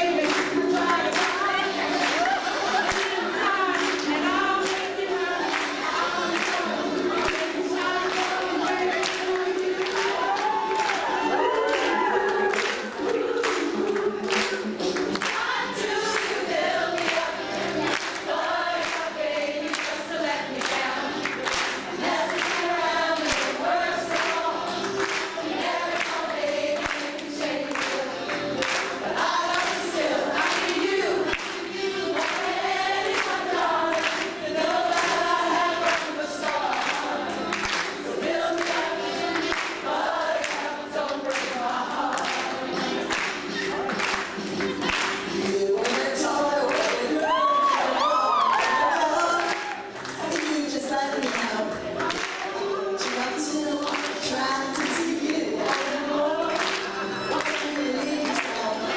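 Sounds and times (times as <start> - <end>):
women singing together: 0.0 - 58.9
hand clapping in time: 8.1 - 15.6, 20.6 - 26.2, 26.8 - 29.8, 35.8 - 38.0, 41.3 - 47.4, 51.2 - 55.9, 56.5 - 58.9.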